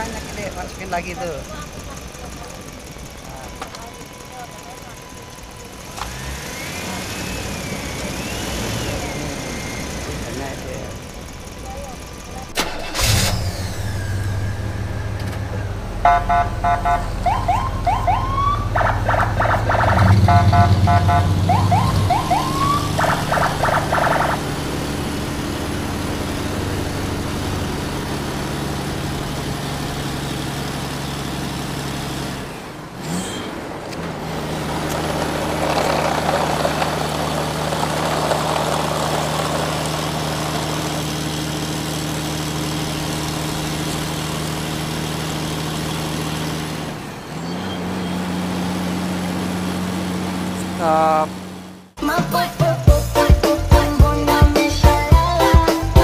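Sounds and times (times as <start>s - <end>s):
truck engine idling: 0.0s - 56.0s
rising siren-like tones: 2.8s - 10.6s, 13.0s - 28.7s
rapid electronic beeping: 19.0s - 24.6s.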